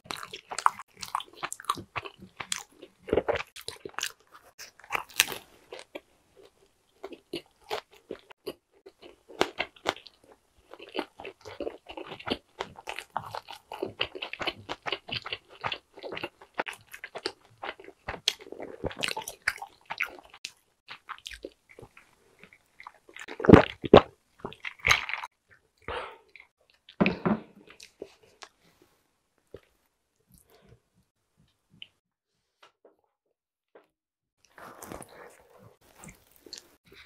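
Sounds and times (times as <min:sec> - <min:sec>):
person chewing crunchy crust: 0:00.0 - 0:27.0, 0:34.4 - 0:37.0.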